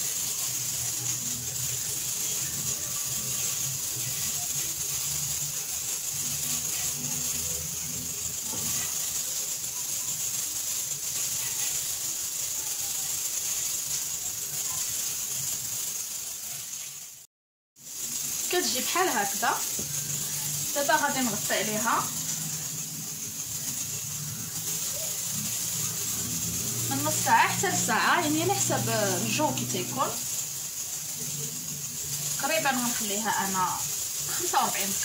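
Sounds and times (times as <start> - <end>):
steady high-pitched hiss: 0.0 - 17.2, 17.8 - 35.0.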